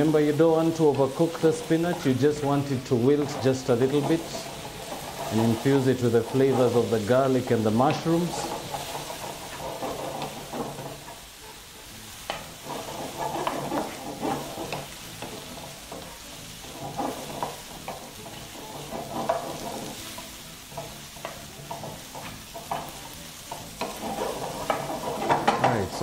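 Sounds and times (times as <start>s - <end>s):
vegetables sizzling in oil: 0.0s - 26.0s
wooden spatula scraping pan: 0.0s - 26.0s.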